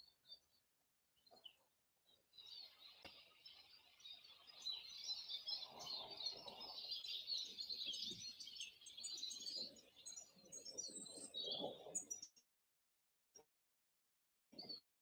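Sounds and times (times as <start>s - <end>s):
songbirds twittering: 1.2s - 12.4s.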